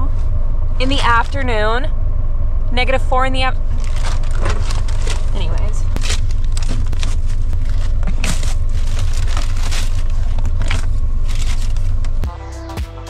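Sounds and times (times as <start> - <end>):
steady low rumble: 0.0 - 12.3
plastic bags crinkling: 3.7 - 12.2.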